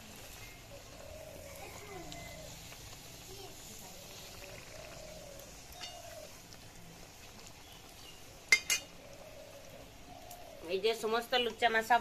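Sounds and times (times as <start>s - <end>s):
food sizzling in hot oil: 0.0s - 12.0s
metal spoon clinking against pan: 8.5s - 8.9s.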